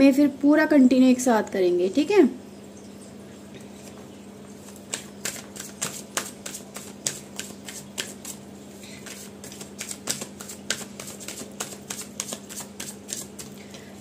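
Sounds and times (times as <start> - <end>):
cards being shuffled: 4.6 - 8.4, 9.0 - 13.6.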